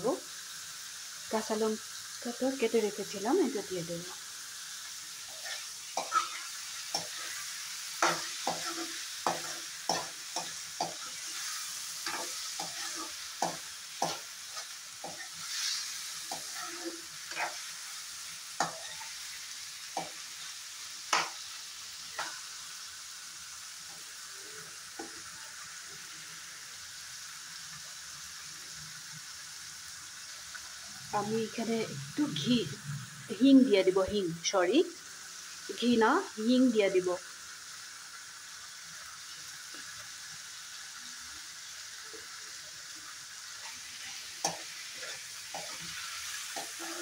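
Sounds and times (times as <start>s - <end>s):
vegetables sizzling in oil: 0.0s - 47.0s
steel spoon scraping pan: 5.3s - 17.8s, 18.6s - 19.2s, 43.6s - 47.0s.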